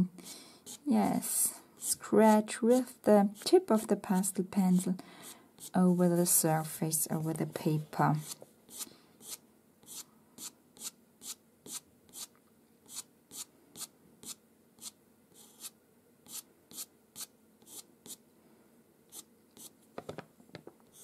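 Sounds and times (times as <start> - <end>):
pencil scratching on paper: 0.6 - 0.9, 1.8 - 4.9, 5.6 - 6.2, 8.1 - 18.2, 19.1 - 19.8.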